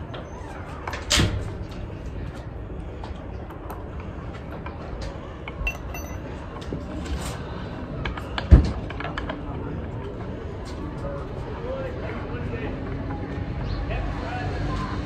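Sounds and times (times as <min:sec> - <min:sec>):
low street noise: 0:00.0 - 0:15.0.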